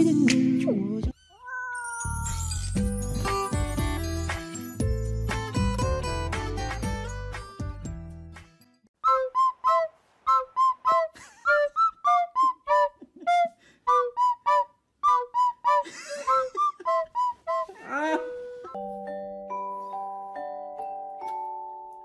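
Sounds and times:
bouncy whistle-like melody: 0:09.0 - 0:18.8.

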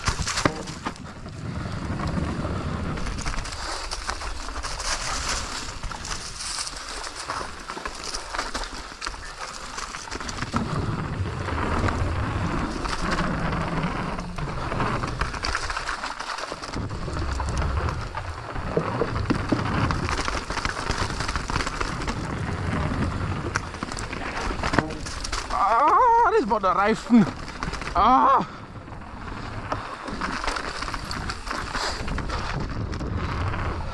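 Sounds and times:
tyres crunching over dirt and stones: 0:00.0 - 0:28.2
bike rattling over bumps: 0:00.0 - 0:33.9.

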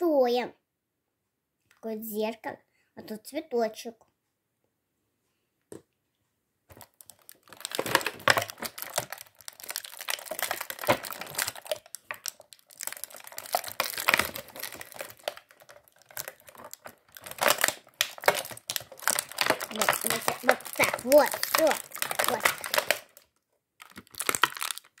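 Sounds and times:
plastic film crinkling: 0:06.7 - 0:25.0.

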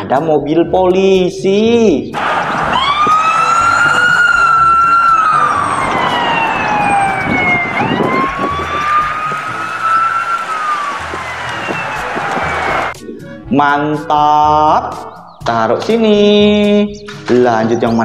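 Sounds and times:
police siren wailing: 0:02.2 - 0:13.0.

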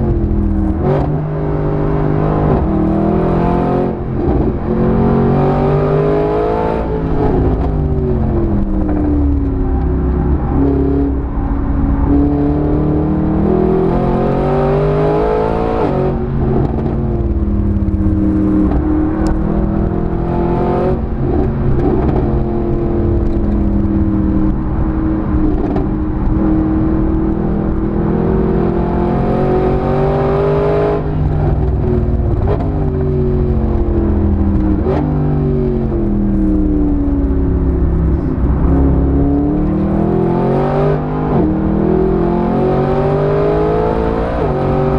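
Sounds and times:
car engine revving hard: 0:12.1 - 0:17.0, 0:25.5 - 0:32.8, 0:38.1 - 0:44.9.

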